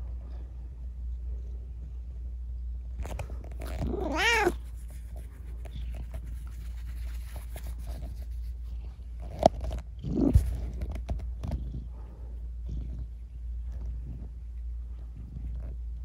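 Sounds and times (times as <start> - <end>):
cat meowing: 3.6 - 4.6.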